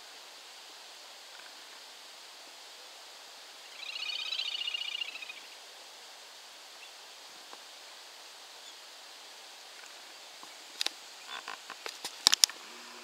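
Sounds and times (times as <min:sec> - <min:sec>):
outdoor hiss: 0:00.0 - 0:13.0
bird high-pitched trill: 0:03.8 - 0:05.5.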